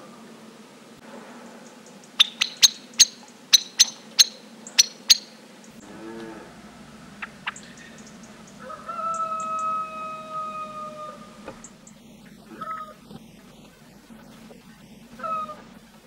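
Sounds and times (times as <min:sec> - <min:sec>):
distant low bird call: 0:01.4 - 0:16.0
blackbird chink calls: 0:01.7 - 0:05.8, 0:06.8 - 0:13.8, 0:14.6 - 0:16.0.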